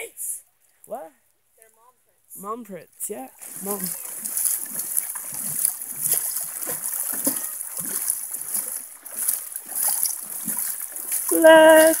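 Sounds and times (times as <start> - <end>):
creek running water: 3.0 - 12.0
water splashing around feet: 3.3 - 12.0.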